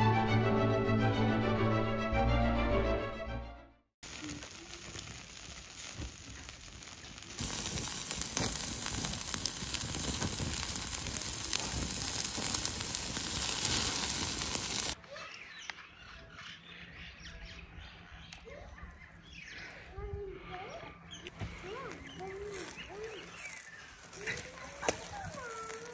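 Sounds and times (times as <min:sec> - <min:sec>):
meat sizzling over fire: 0:04.0 - 0:15.0, 0:21.5 - 0:25.9.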